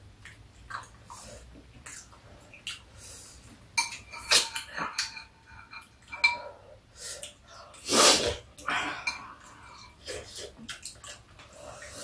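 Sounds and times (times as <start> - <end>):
spoons clinking on ceramic bowls: 3.8 - 6.5.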